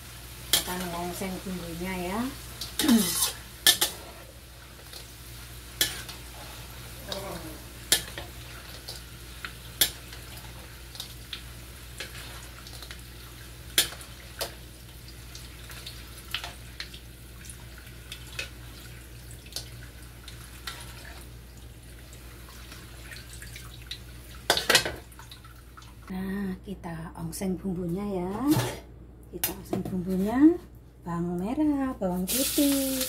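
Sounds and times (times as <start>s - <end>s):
faint frying hiss: 0.0s - 26.5s, 31.4s - 33.0s
metal skimmer scraping a wok: 2.8s - 4.3s.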